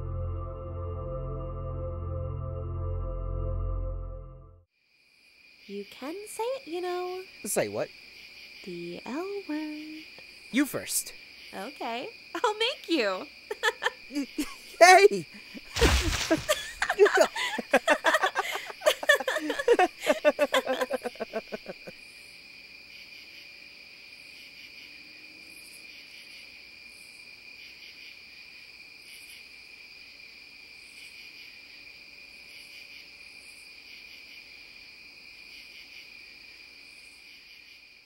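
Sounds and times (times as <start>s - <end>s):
crickets chirping: 4.8s - 38.0s
people laughing: 13.5s - 21.9s.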